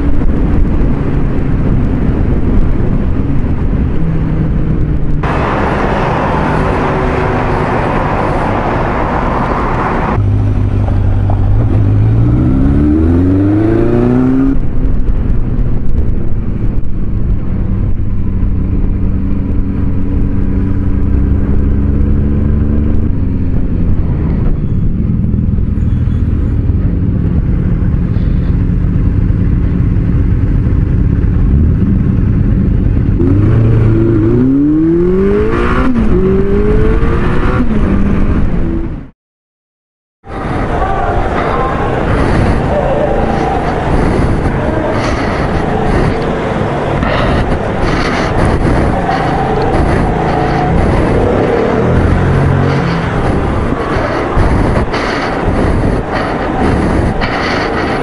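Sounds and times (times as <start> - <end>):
loud rushing noise: 0.0 - 18.6, 40.3 - 58.0
motorcycle engine revving: 3.4 - 15.2, 18.2 - 39.1, 41.0 - 58.0.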